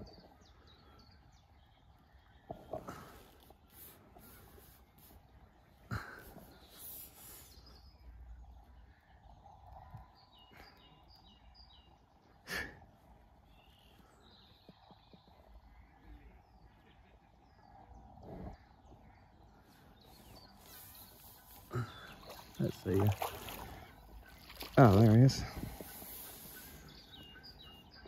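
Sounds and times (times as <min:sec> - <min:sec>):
bird chirping: 0:04.4 - 0:12.4, 0:13.4 - 0:28.0.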